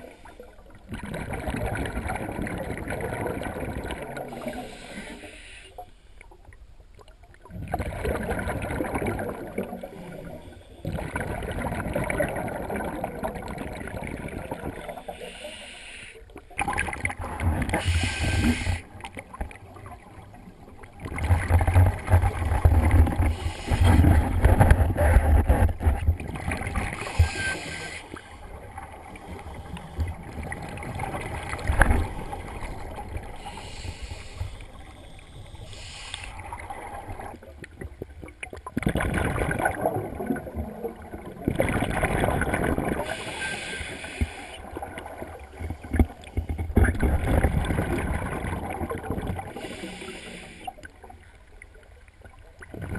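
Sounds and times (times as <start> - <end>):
gurgling exhaled bubbles: 0.8 - 4.8, 7.4 - 15.0, 16.5 - 27.8, 28.4 - 33.7, 36.4 - 43.4, 44.6 - 50.0, 52.6 - 52.9
diver breathing through regulator: 4.4 - 5.9, 14.9 - 16.3, 17.7 - 18.9, 23.2 - 24.3, 26.8 - 28.6, 33.3 - 36.6, 43.0 - 44.7, 49.5 - 50.9.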